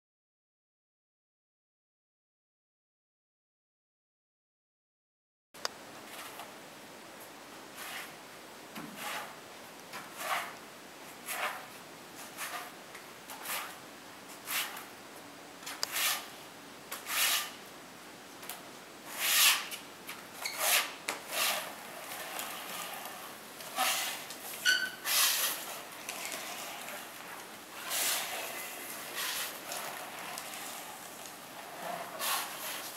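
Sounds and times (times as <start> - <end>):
spreader scraping cement floor: 6.1 - 6.5, 7.7 - 8.2, 8.8 - 14.9, 15.6 - 17.6, 19.0 - 19.8, 20.4 - 32.9.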